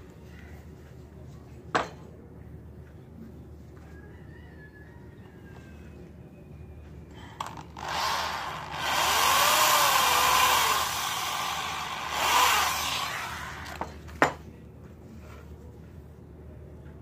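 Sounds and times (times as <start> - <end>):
electric drill boring through wood: 7.8 - 13.9.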